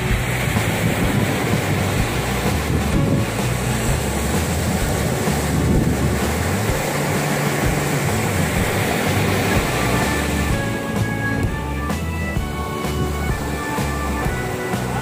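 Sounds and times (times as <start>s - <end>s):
surf breaking on a beach: 0.0s - 15.0s
wind buffeting the microphone: 0.0s - 15.0s.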